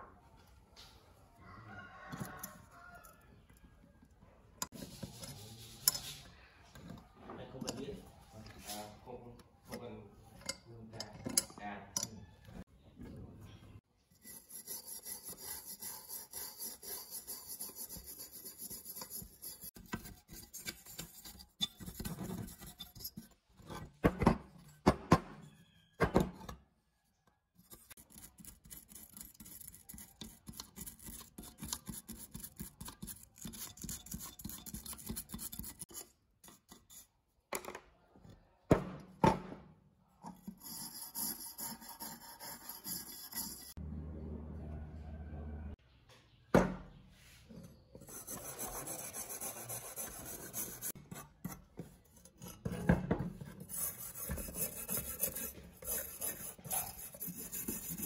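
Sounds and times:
wire brush scrubbing metal: 14.2 - 23.4, 27.6 - 37.2, 40.3 - 43.8, 48.1 - 51.6, 53.6 - 58.0.

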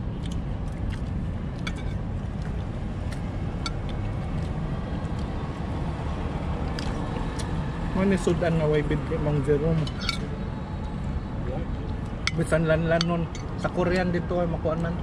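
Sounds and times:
low background rumble: 0.0 - 15.0
cutlery clinking on plates: 9.9 - 10.3.

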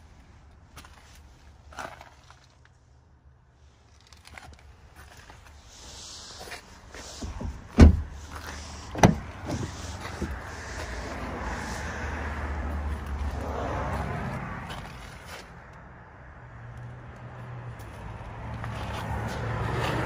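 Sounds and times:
sharp thump: 7.2 - 8.2, 8.9 - 10.4
car door shutting: 7.2 - 10.4.

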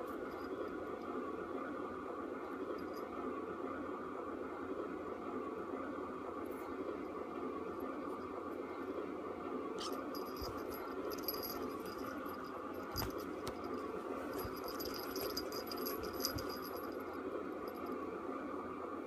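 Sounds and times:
small object jingling and rattling: 9.8 - 18.0.

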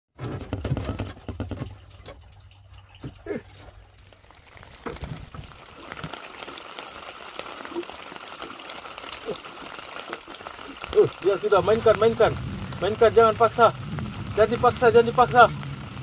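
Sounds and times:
drizzle pattering on water and boat: 1.0 - 16.0
low rumble: 11.6 - 16.0.

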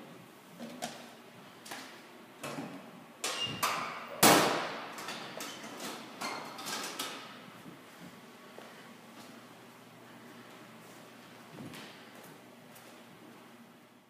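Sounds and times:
metal locker door slamming: 3.3 - 5.3.

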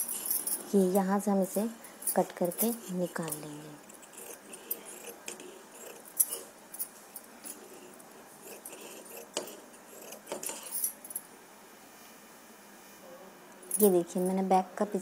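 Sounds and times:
scissors cutting fabric: 2.1 - 6.5, 7.4 - 10.8.

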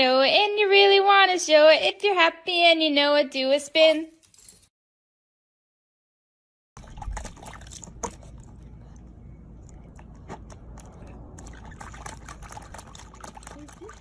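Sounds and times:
water splashing and dripping: 6.8 - 14.0
low rumble: 8.2 - 13.4.

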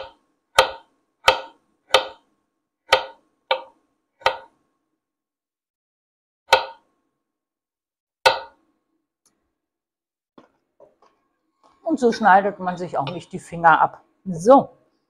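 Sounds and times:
knife chopping on wooden board: 0.0 - 2.2, 2.9 - 4.5, 6.5 - 6.8, 8.3 - 8.6.

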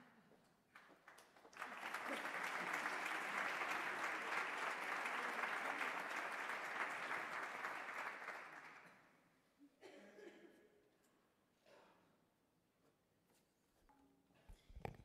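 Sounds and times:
audience applauding: 0.7 - 8.9.

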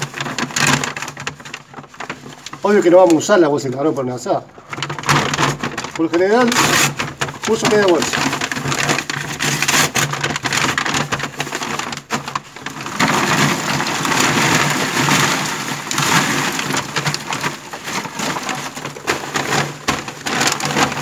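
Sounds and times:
charcoal clattering onto wire basket: 4.7 - 21.0.

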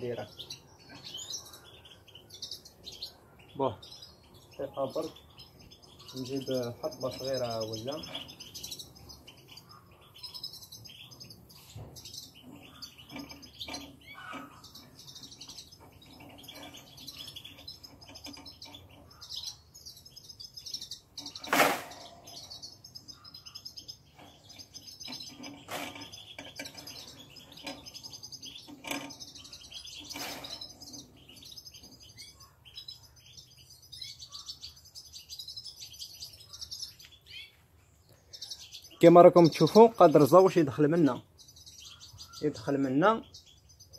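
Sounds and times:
finches chirping and twittering: 0.0 - 43.9
wire cage clack: 21.2 - 22.6, 24.1 - 31.4.

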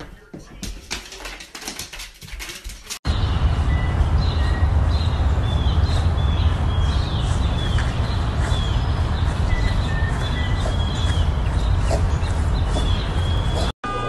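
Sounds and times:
small birds chirping: 3.1 - 13.8.

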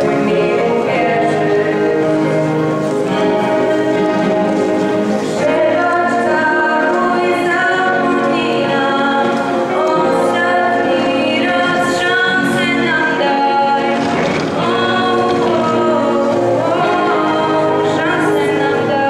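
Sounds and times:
electric keyboard: 0.0 - 19.0
girl singing into a microphone: 5.4 - 19.0.

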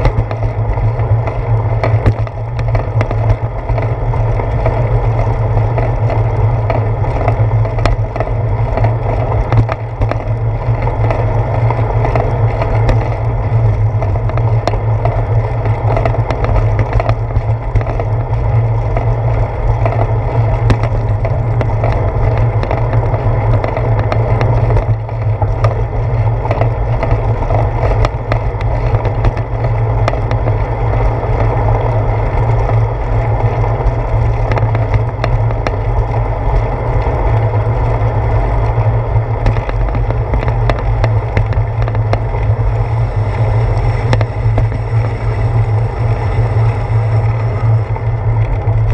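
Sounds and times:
bicycle rumbling over concrete: 0.0 - 48.9.

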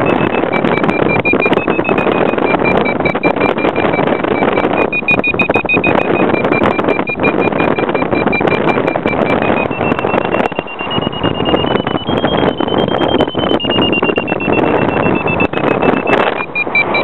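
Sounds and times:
variometer beeping: 0.0 - 17.0
wind rushing over microphone: 0.0 - 17.0.

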